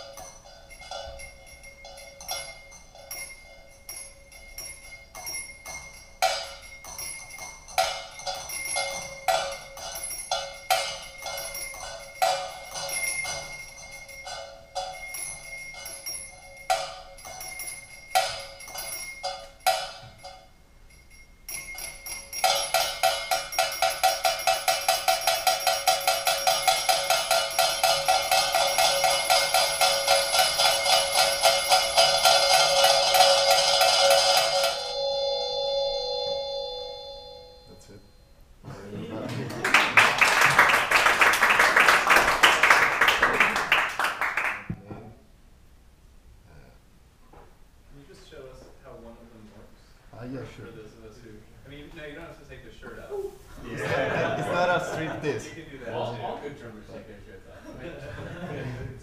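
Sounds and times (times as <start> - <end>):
ringing percussive strikes: 0.0 - 38.5.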